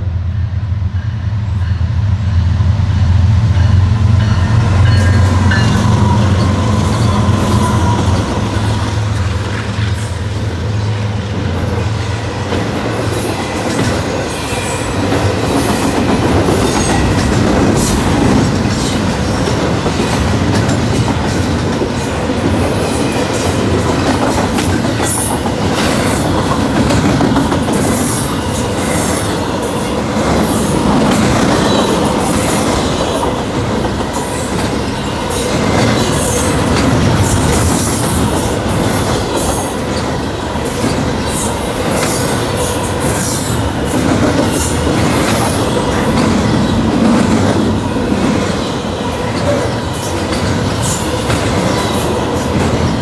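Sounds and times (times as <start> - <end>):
freight train wheels rushing on rails: 0.0 - 53.0
clattering clicks of train cars: 4.1 - 53.0.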